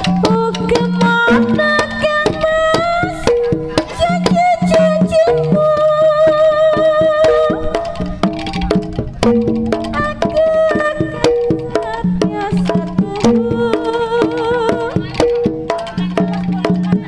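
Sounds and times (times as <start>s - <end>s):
melody of pitched notes: 0.0s - 17.0s
sharp drum strokes: 0.0s - 17.0s.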